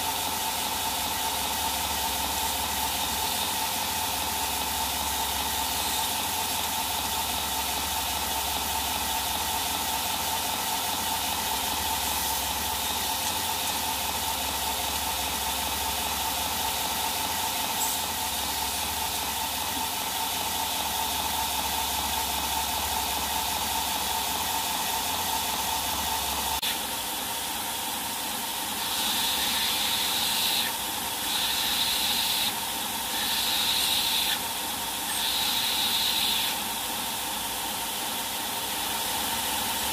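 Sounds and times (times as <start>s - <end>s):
belt grinder hiss and whine: 0.0s - 24.6s, 28.6s - 36.9s.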